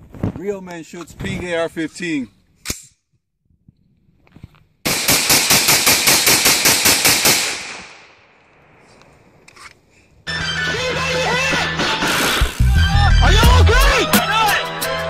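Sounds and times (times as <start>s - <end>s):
rapid rifle gunshots: 4.8s - 8.3s.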